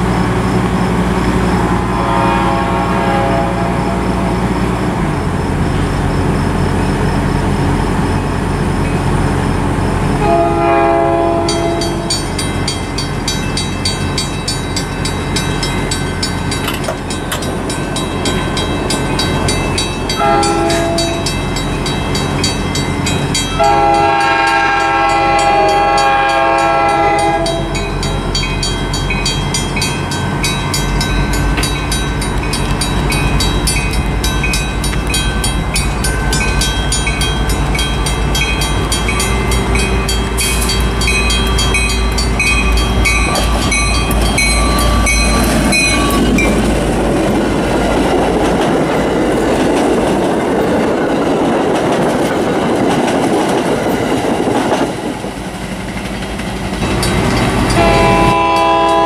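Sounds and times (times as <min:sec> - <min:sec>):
crossing warning bell ringing: 0:00.0 - 0:53.4, 0:56.7 - 0:59.0
low rumble of train: 0:00.0 - 0:59.0
train air horn blasts: 0:01.7 - 0:04.4, 0:10.2 - 0:12.2, 0:20.2 - 0:21.3, 0:23.6 - 0:27.9, 0:57.7 - 0:59.0.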